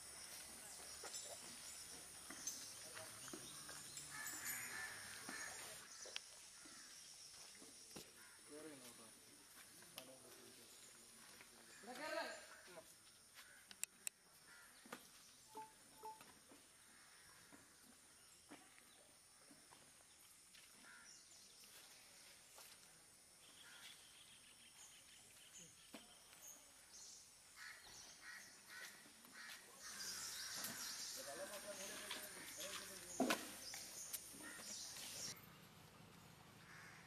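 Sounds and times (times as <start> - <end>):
distant crows cawing: 3.4 - 5.8, 6.5 - 7.0, 8.2 - 8.6, 13.4 - 17.7, 20.8 - 21.2, 27.6 - 33.0, 34.4 - 34.9, 36.6 - 37.0.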